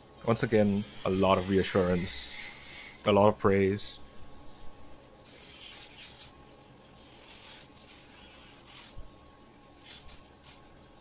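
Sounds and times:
nail grinder rasping: 0.6 - 3.1.

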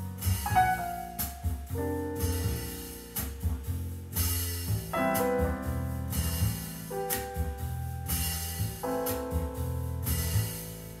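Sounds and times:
held keyboard chords: 0.4 - 3.7, 4.9 - 11.0.

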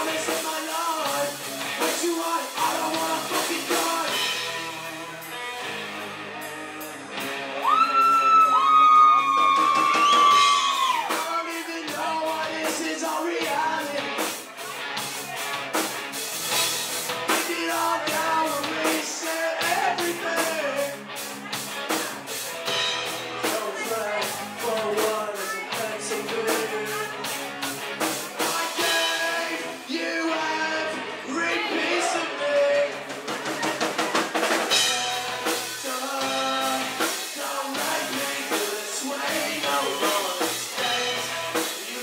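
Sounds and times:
man singing: 0.0 - 5.3, 10.4 - 14.4, 17.3 - 21.0, 23.3 - 27.5, 28.4 - 34.0, 34.7 - 42.0
drums with cymbal strikes: 0.0 - 5.5, 9.4 - 29.7, 33.0 - 42.0
bass guitar: 0.0 - 42.0
electric guitar: 0.0 - 42.0.

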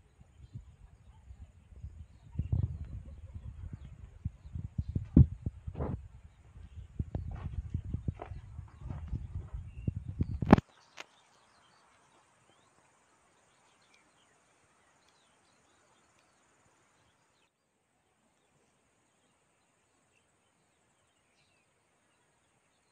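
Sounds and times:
tiny chirps: 0.0 - 12.8
faint outdoor hiss: 0.0 - 22.9.

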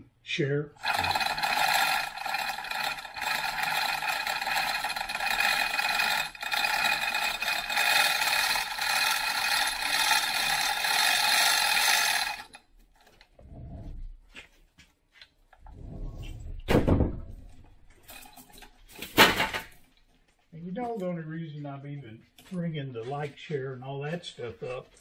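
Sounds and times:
chain hoist ratcheting clatter: 0.8 - 13.2, 17.4 - 19.8.

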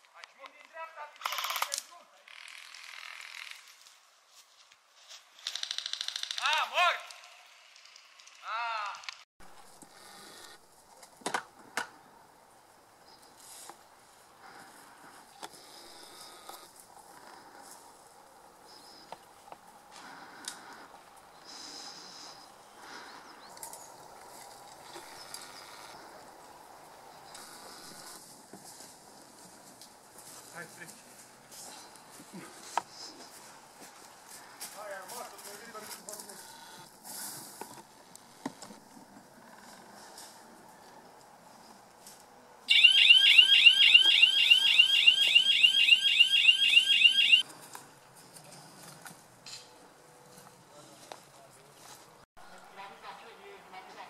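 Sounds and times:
sharp clicks: 0.1 - 1.9
electronic alarm whooping: 42.7 - 47.4.

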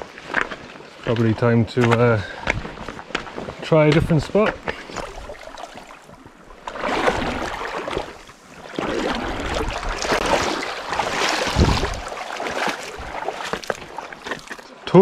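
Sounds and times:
sea water sloshing around rocks: 4.4 - 14.9.

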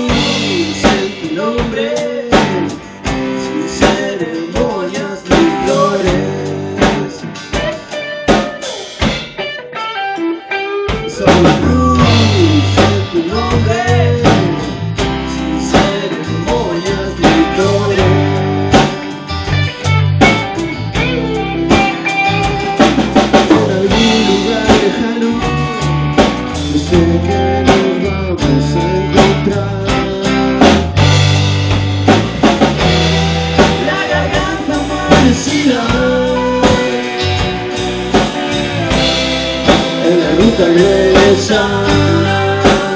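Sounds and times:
drums: 0.0 - 42.9
rock band playing: 0.0 - 42.9.

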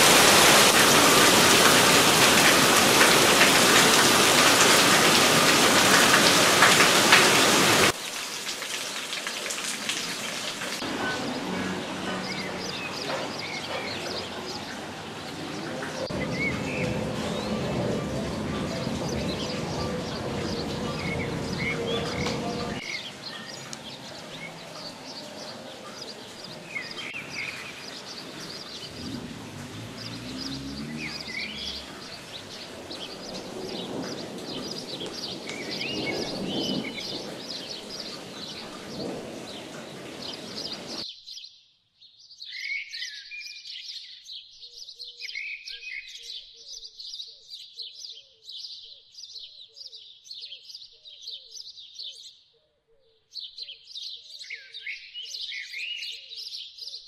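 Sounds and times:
rain on the street: 0.0 - 41.0
small birds chirping: 10.3 - 57.0.

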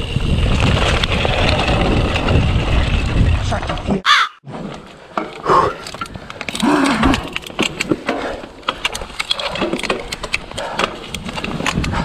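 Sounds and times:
bike chain and frame rattling: 0.0 - 4.0, 4.8 - 12.0
sharp clicks over bumps: 4.7 - 12.0.

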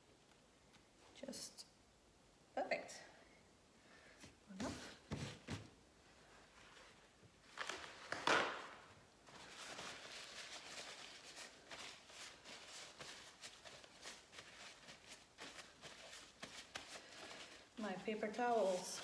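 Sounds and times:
paper towel rustling and crinkling: 4.7 - 19.0.

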